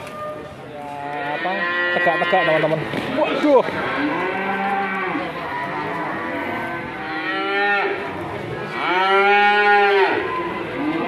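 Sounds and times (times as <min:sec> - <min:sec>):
cattle mooing: 0:01.0 - 0:02.8, 0:03.8 - 0:08.0, 0:08.7 - 0:11.0.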